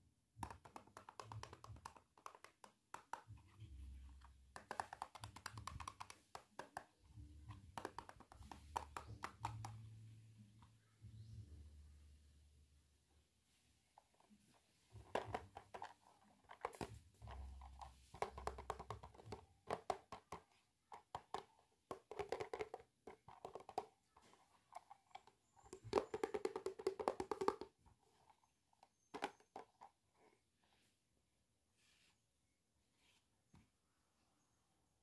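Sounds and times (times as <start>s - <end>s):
plastic toy bathtub clicking and rattling: 0.4s - 9.8s, 15.0s - 30.1s.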